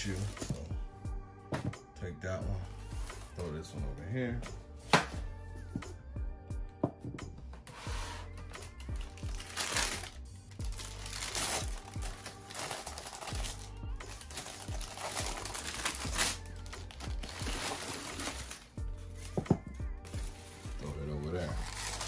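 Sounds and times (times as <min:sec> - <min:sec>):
background music: 0:00.0 - 0:22.0
tissue paper crinkling: 0:07.9 - 0:19.3, 0:20.3 - 0:22.0.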